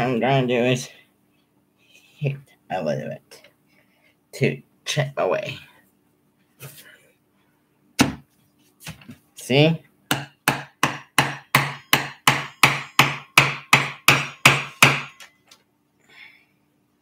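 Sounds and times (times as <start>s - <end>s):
hammer striking chisel: 10.1s - 15.3s.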